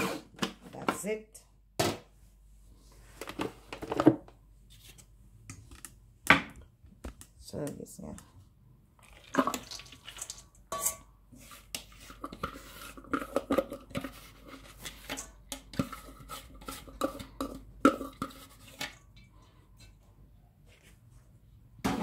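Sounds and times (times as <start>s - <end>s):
plastic spatula scraping bowl: 11.3s - 19.0s.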